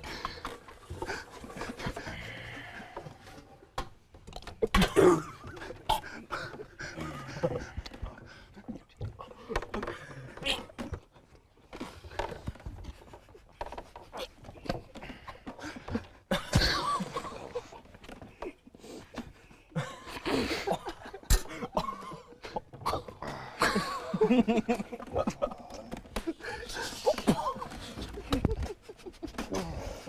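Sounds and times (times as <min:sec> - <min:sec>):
heavy panting breaths: 0:05.4 - 0:10.4, 0:25.0 - 0:30.0.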